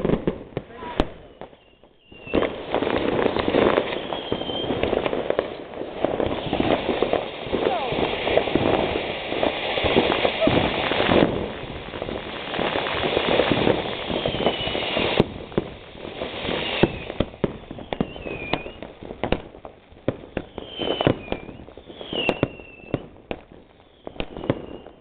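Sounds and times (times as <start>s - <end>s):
firework whistles falling: 0.7s - 8.8s, 12.4s - 15.3s, 16.2s - 19.4s, 20.2s - 23.1s, 23.8s - 25.0s
fountain firework hissing: 2.2s - 18.9s
firecracker bangs: 2.2s - 19.5s.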